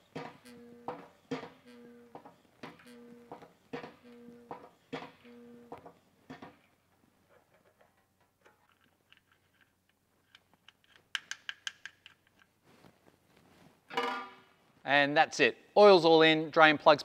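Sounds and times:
hand tool clicks and taps: 10.3 - 12.5.

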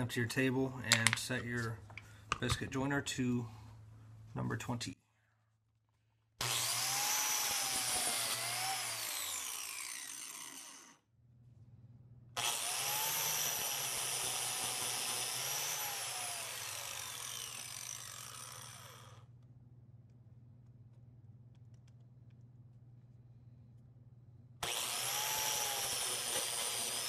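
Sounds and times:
biscuit joiner motor whining: 6.4 - 11.0, 12.4 - 19.2, 24.6 - 27.0.

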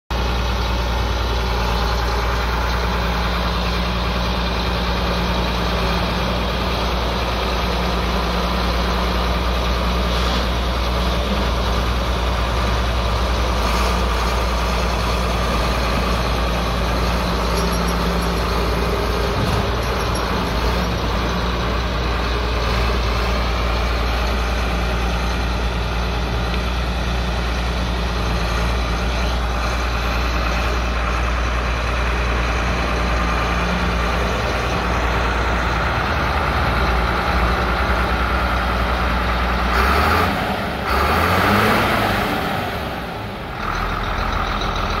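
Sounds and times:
tractor diesel engine running: 0.1 - 45.0
engine revving: 32.4 - 45.0.

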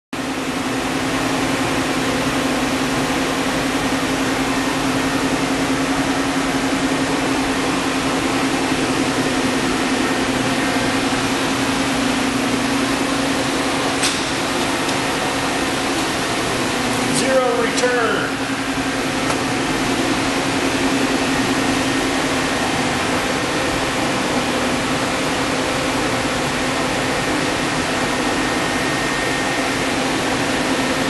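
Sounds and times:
machining center humming: 0.2 - 31.0
sharp click: 14.0 - 14.3.

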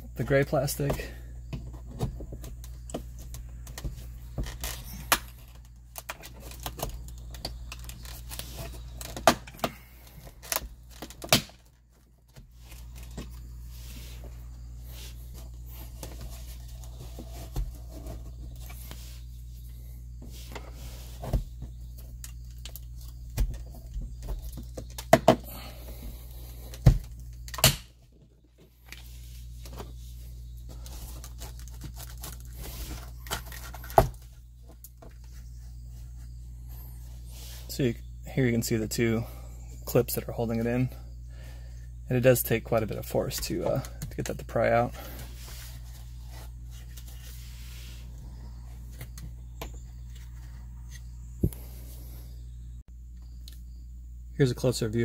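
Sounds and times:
low hum: 0.0 - 54.8.

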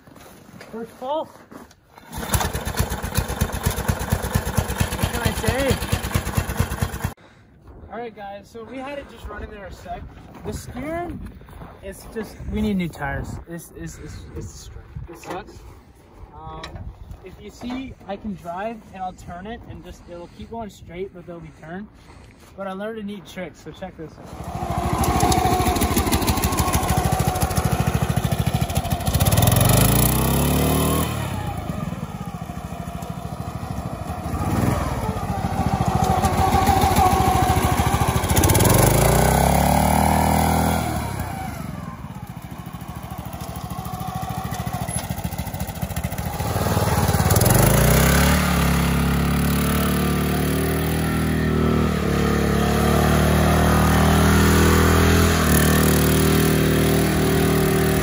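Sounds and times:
go-kart engine revving: 2.0 - 7.2, 24.2 - 58.0.

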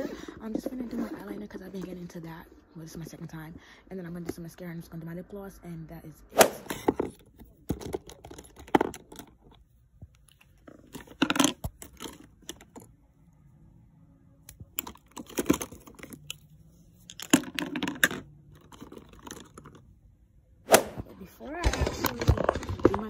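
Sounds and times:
plastic cases clicking together: 6.6 - 9.6, 14.8 - 16.4, 17.1 - 19.8.

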